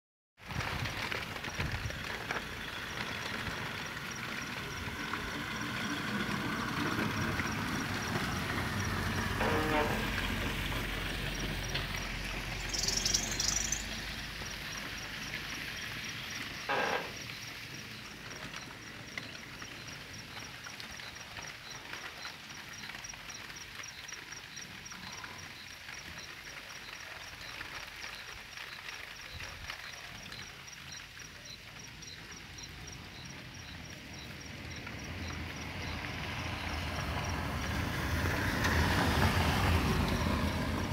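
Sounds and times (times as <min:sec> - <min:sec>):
rain falling: 0:00.4 - 0:40.9
insect chirping: 0:10.9 - 0:37.6.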